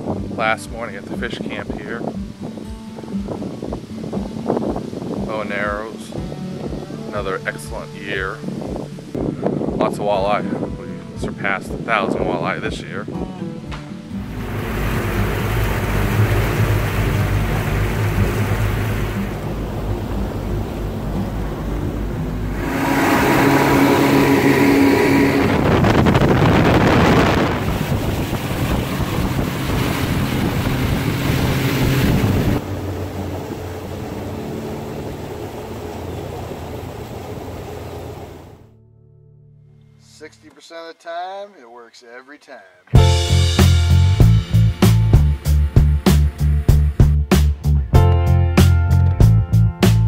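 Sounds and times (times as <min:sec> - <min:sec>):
wind buffeting microphone: 0:00.0 - 0:38.6
water rushing past hull: 0:14.1 - 0:38.7
outboard motors droning: 0:14.2 - 0:38.7.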